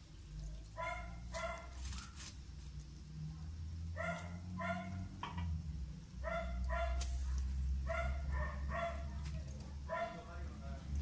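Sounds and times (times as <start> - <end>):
dog barking: 0.8 - 2.2, 4.0 - 5.1, 6.2 - 7.1, 7.8 - 9.2, 9.8 - 10.3.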